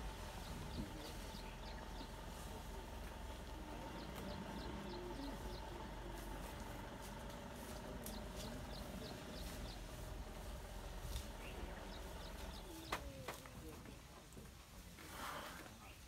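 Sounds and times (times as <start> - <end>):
low steady hum: 0.0 - 16.0
small bird chirping: 3.8 - 6.5, 8.0 - 10.4, 11.1 - 13.3.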